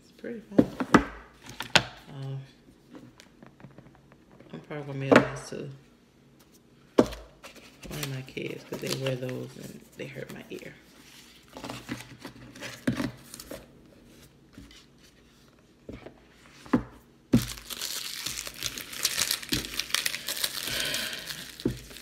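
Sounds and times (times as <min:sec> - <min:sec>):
packaging being handled: 0:17.4 - 0:22.0
wrapping crinkling: 0:17.4 - 0:22.0.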